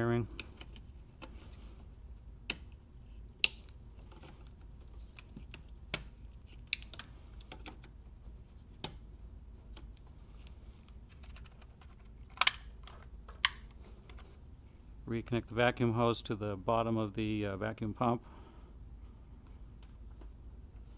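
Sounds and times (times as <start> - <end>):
plastic connectors clicking: 3.4 - 7.9, 12.2 - 13.8
connectors snapping into sockets: 12.3 - 13.7.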